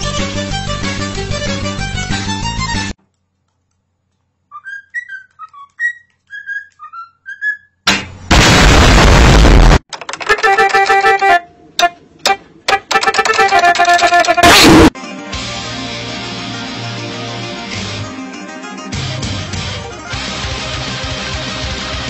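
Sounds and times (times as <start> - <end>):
bird whistling: 4.5 - 7.8
harsh noise rush: 8.2 - 9.8
keyboard keys clicking: 9.9 - 10.8
electronic keyboard notes: 10.2 - 15.5.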